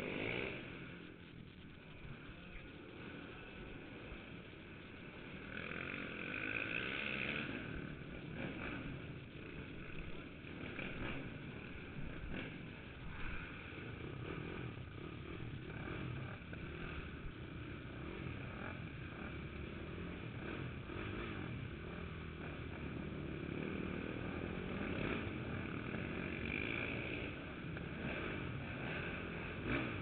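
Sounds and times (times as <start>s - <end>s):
dirt bike engine revving: 0.0s - 30.0s.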